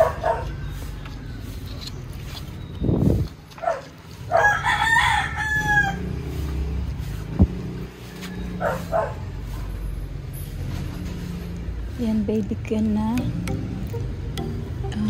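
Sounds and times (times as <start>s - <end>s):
rooster crowing: 4.3s - 6.4s, 8.0s - 9.0s.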